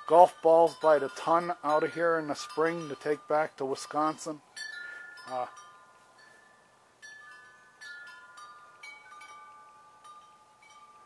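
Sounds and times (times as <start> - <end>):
faint wind chimes ringing: 0.0 - 11.0.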